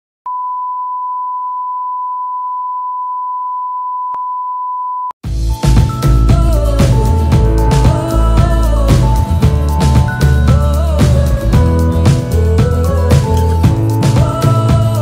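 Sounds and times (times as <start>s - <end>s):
music with steady beat: 5.2s - 15.0s.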